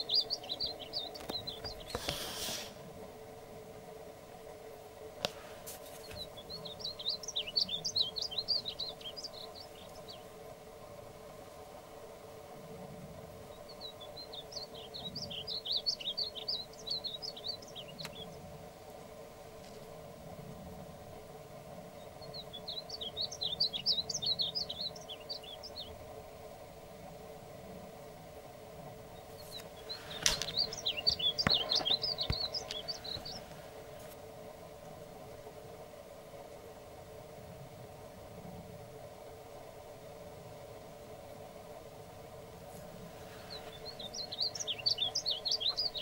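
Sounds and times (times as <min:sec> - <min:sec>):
bird singing warbling song: 0:00.0 - 0:02.4, 0:05.9 - 0:10.4, 0:13.4 - 0:18.5, 0:21.9 - 0:26.1, 0:29.0 - 0:33.6, 0:43.2 - 0:46.0
low background hum: 0:00.0 - 0:46.0.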